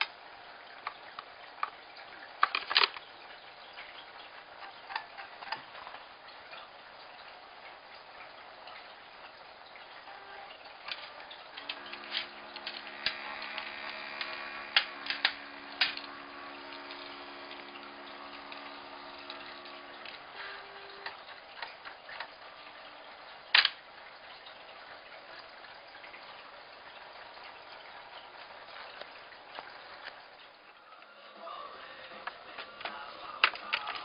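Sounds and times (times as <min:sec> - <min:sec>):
printer motor hum: 0:09.9 - 0:21.5.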